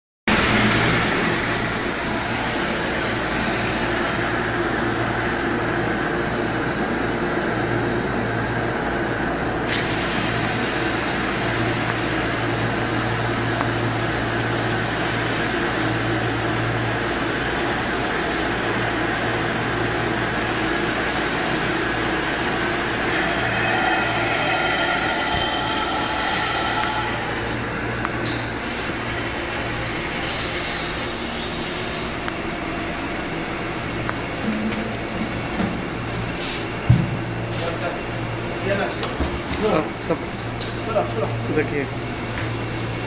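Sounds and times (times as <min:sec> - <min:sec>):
pumping machinery humming: 0:00.3 - 0:43.0
low drone: 0:20.9 - 0:36.4.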